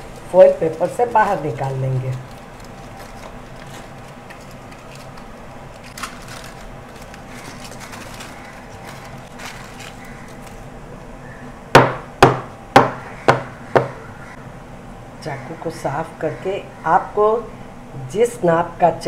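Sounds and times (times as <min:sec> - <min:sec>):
aluminium foil rustling: 0:00.0 - 0:10.7
knocks on wooden chopping board: 0:11.8 - 0:14.0.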